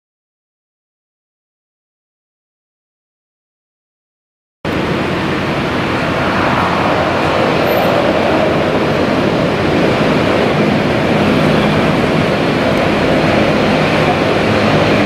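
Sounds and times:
jet engines on landing approach: 0:04.7 - 0:15.0.

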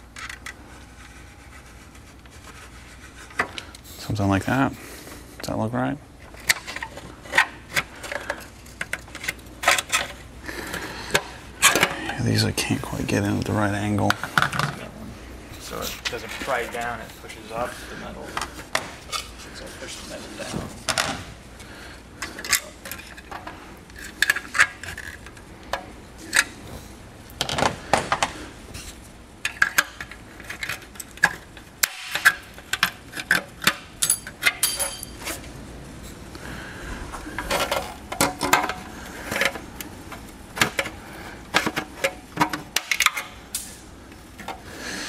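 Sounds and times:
high metallic ringing: 0:34.0 - 0:35.2.

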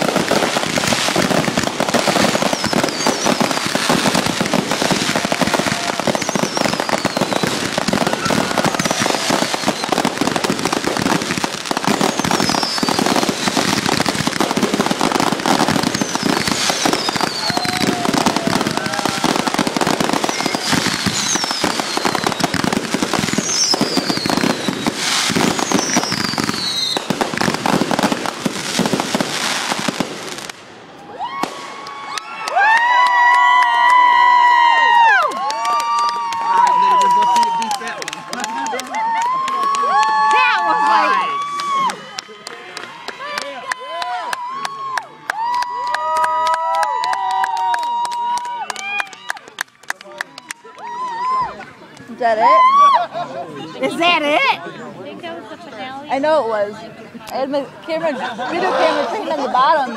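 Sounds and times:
fireworks crackling and popping: 0:00.0 - 0:52.9
firework whistles falling in pitch: 0:02.2 - 0:03.7, 0:05.1 - 0:10.2, 0:11.9 - 0:13.7, 0:15.6 - 0:27.1.

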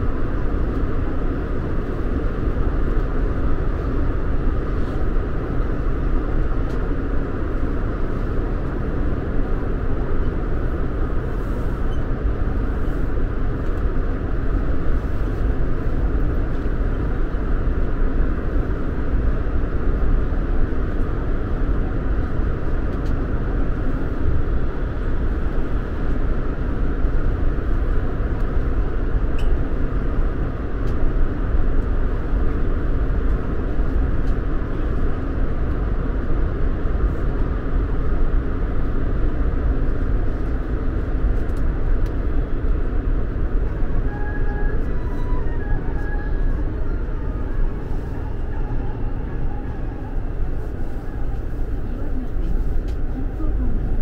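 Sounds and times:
train wheels and motors rumbling: 0:00.0 - 0:54.0.

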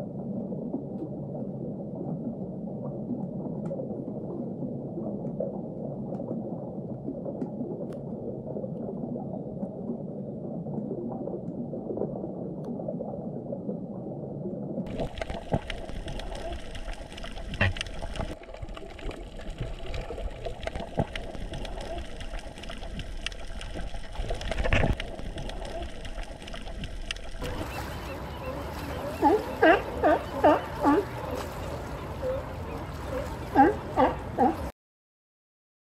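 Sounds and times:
muffled underwater water noise: 0:00.0 - 0:34.7
water sloshing and splashing: 0:14.8 - 0:34.7.

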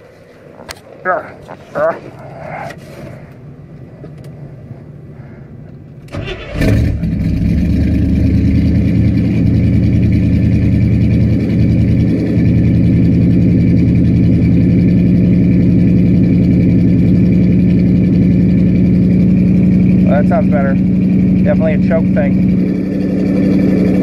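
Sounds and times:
car engine idling: 0:00.4 - 0:24.0
car engine cranking: 0:06.0 - 0:24.0.

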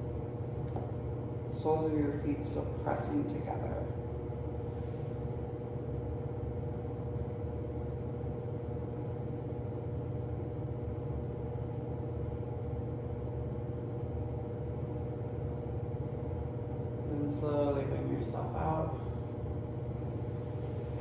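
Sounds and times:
low motor hum: 0:00.0 - 0:21.0.

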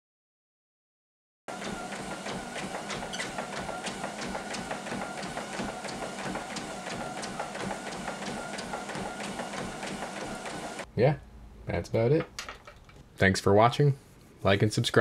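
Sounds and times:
regular treadmill clicks: 0:01.5 - 0:10.9
treadmill motor and belt: 0:01.5 - 0:10.9.

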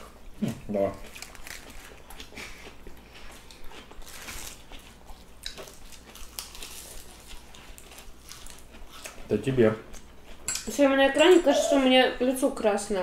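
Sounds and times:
people crunching lettuce: 0:01.0 - 0:09.3.

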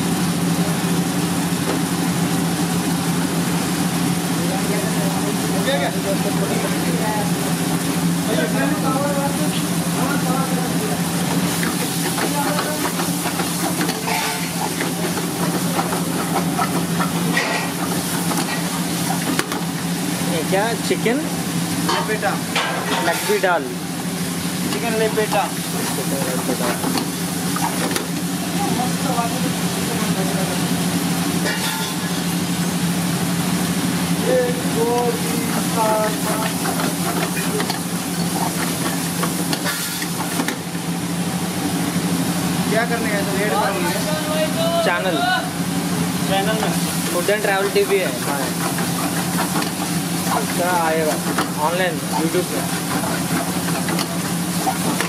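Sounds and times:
chicken sizzling in a pan: 0:00.0 - 0:55.0
steel ladle scraping a pan: 0:13.9 - 0:14.8.

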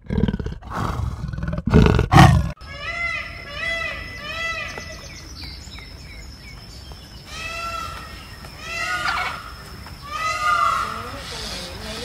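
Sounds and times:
peafowl calling: 0:02.6 - 0:05.1, 0:07.2 - 0:12.0.

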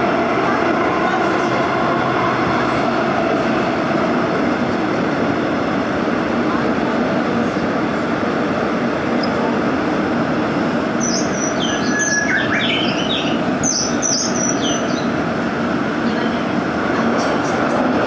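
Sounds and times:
subway train wheels rumbling: 0:00.0 - 0:18.0.

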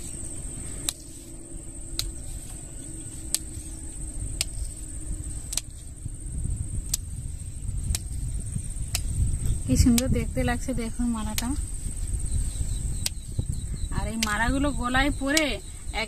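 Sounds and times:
insects trilling: 0:00.0 - 0:16.0
sharp tick: 0:04.4 - 0:04.7, 0:05.5 - 0:05.8, 0:06.8 - 0:07.1, 0:08.8 - 0:10.2, 0:11.2 - 0:11.6, 0:13.0 - 0:13.3, 0:14.0 - 0:14.5, 0:15.3 - 0:15.6.

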